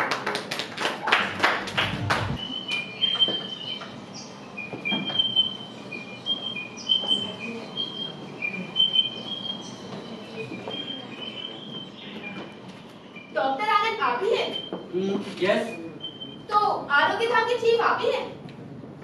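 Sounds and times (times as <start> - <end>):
applause: 0.0 - 2.4
recorded birdsong: 1.9 - 14.0, 15.7 - 16.5.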